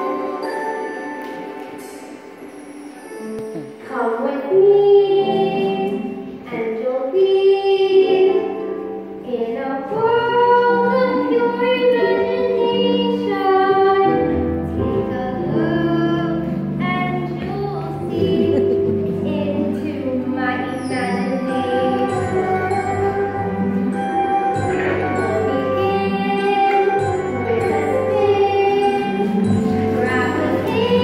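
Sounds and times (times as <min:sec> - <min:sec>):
instrumental accompaniment: 0:00.0 - 0:31.0
girl singing: 0:03.1 - 0:31.0.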